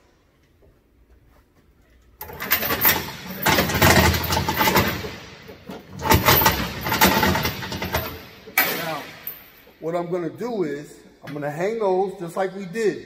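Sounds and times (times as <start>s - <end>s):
heavy chain clanking: 2.2s - 9.7s.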